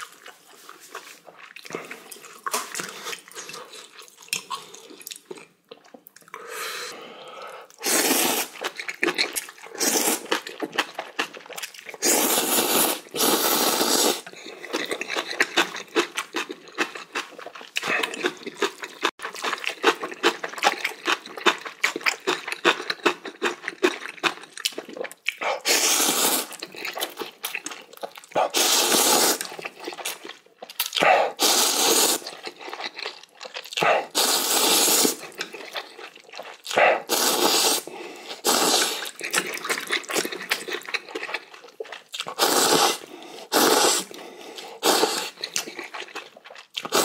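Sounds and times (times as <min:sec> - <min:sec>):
wet chewing and mouth clicks: 0:00.0 - 0:06.5, 0:07.3 - 0:47.0
noodle slurping: 0:06.4 - 0:10.8, 0:11.9 - 0:15.6, 0:25.3 - 0:29.9, 0:31.0 - 0:32.9, 0:33.8 - 0:41.2, 0:42.2 - 0:46.1, 0:46.8 - 0:47.0.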